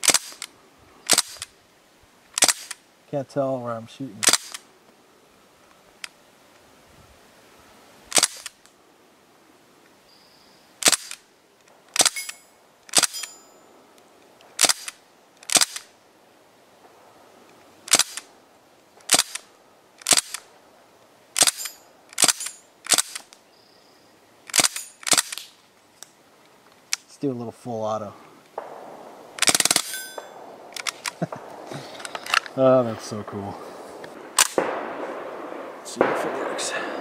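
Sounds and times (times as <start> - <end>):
air rifle shots cracking: 0.0 - 0.5, 1.1 - 1.6, 2.4 - 2.8, 4.2 - 4.7, 8.1 - 8.6, 10.8 - 11.2, 11.9 - 13.3, 14.5 - 15.9, 17.8 - 18.3, 19.0 - 20.5, 21.4 - 23.3, 24.5 - 25.6, 28.5 - 37.0
metallic ping on steel targets: 12.1 - 13.7, 29.8 - 30.5.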